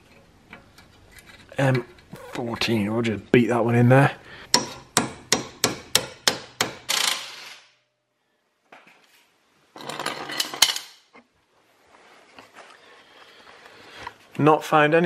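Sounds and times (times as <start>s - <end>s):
tools scraping and knocking: 0.0s - 2.9s, 4.5s - 7.6s, 9.8s - 11.3s
hammer striking metal bit: 4.5s - 7.0s.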